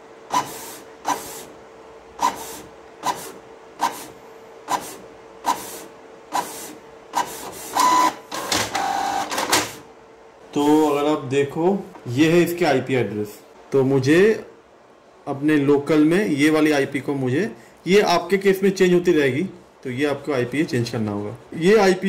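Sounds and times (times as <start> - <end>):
printer hum: 0.0 - 13.8
printer motor whine: 0.3 - 1.6, 2.2 - 9.9
printer mechanical clicks: 7.2 - 9.8.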